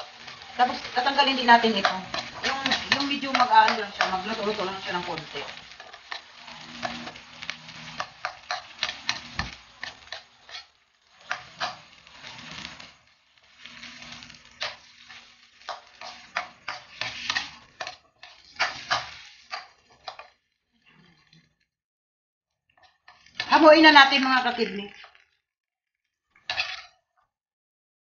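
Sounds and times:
meat sizzling in a wok: 0:00.0 - 0:21.5, 0:22.8 - 0:25.2, 0:26.2 - 0:27.0
metal ladle scraping a pan: 0:00.0 - 0:21.6, 0:26.4 - 0:27.0.

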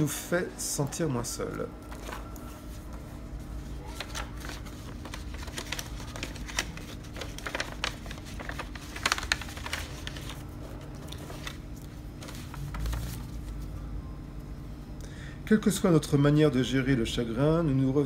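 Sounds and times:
paper card clicks and rustles: 0:03.8 - 0:13.7.

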